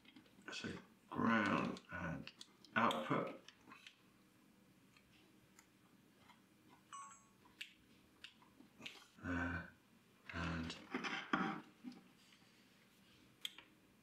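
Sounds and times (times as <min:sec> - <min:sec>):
small clicks and handling noise: 0:00.0 - 0:04.0.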